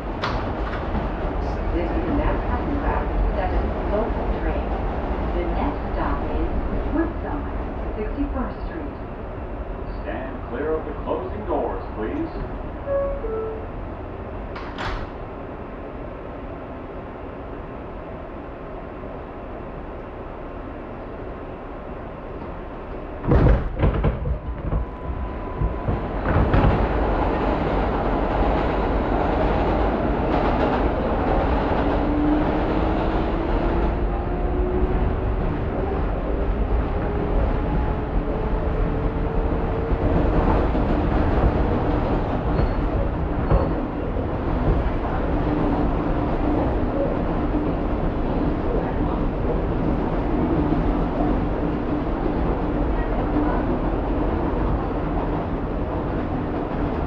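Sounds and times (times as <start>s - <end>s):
train rumbling on rails: 0.0s - 57.0s.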